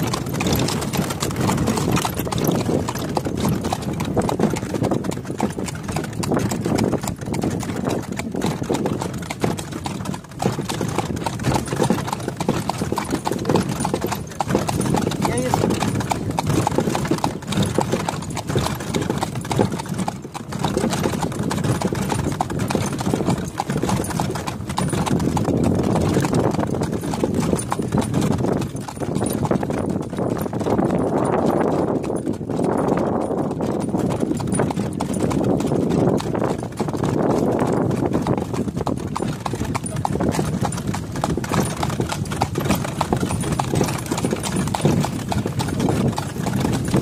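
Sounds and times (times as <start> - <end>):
horse hooves clip-clopping on pavement: 0.0 - 47.0
cart rolling rumble: 34.4 - 47.0.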